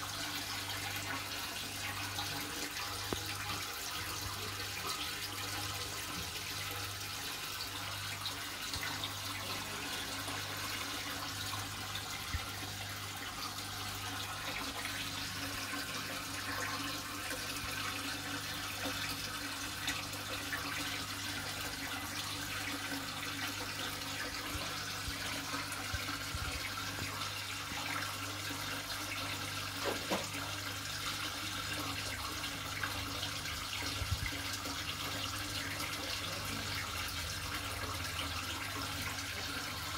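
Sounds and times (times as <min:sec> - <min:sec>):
aquarium water trickling and bubbling: 0:00.0 - 0:39.9.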